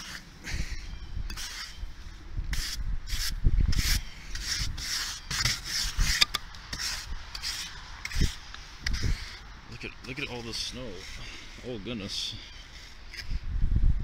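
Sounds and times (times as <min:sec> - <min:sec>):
snow brush sweeping snow: 0:02.6 - 0:09.4, 0:10.2 - 0:13.3.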